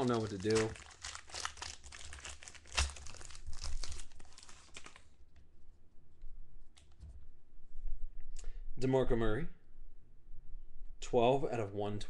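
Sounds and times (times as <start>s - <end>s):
wrapper tearing and crinkling: 0.0s - 5.1s.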